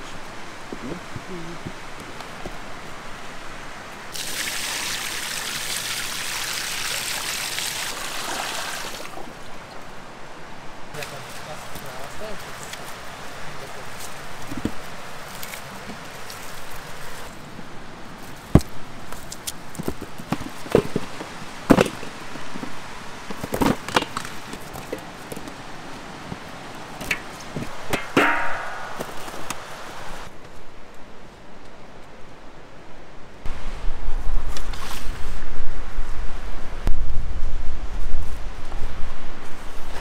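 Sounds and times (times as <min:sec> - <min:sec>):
steady hiss: 0:00.0 - 0:17.6, 0:27.0 - 0:30.3.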